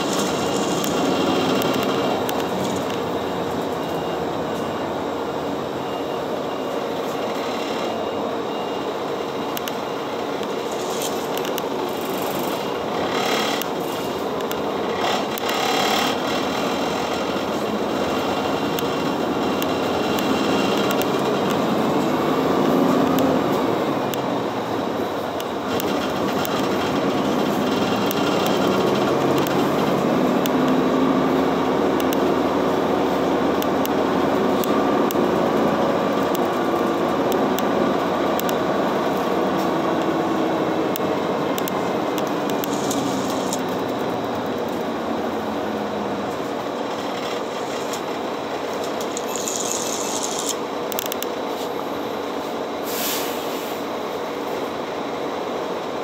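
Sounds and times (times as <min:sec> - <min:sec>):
bus engine and road rumble: 0:00.0 - 0:56.0
short air hisses: 0:52.8 - 0:53.8.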